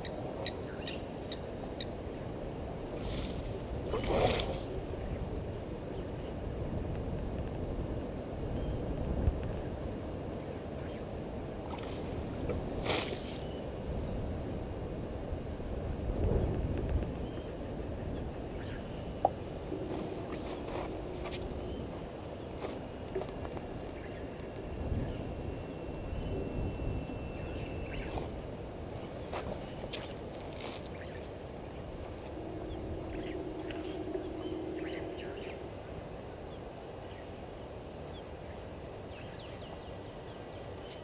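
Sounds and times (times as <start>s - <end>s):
high insect trill: 0.0s - 41.0s
low ambient rumble: 13.8s - 30.3s, 31.3s - 37.3s.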